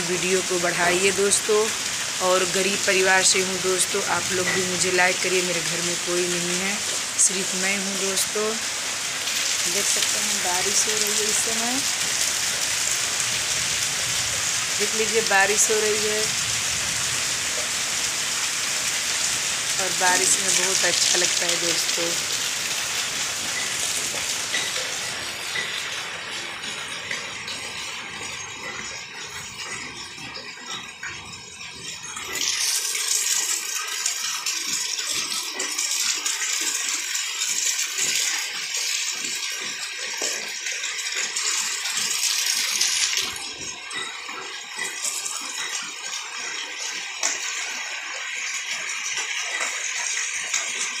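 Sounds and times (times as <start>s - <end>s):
heavy rain: 0.0s - 28.5s.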